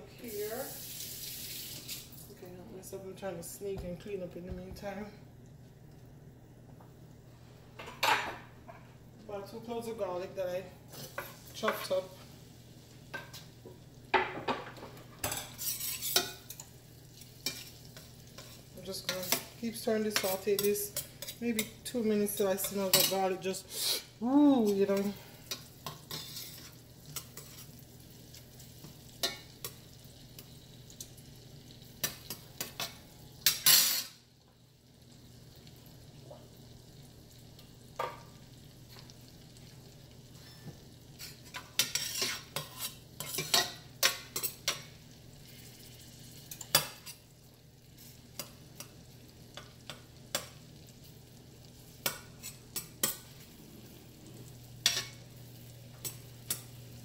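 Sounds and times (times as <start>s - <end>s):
garlic sizzling in butter: 0.0s - 3.6s, 7.7s - 57.0s
metal spoon scraping a pot: 15.2s - 16.7s, 24.9s - 27.7s, 41.2s - 44.8s.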